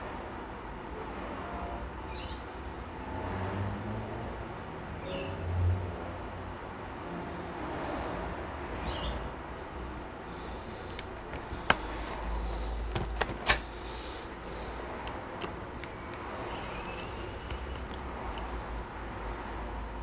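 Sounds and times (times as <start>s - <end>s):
laptop knocks and clicks: 11.2s - 12.2s, 12.8s - 13.7s.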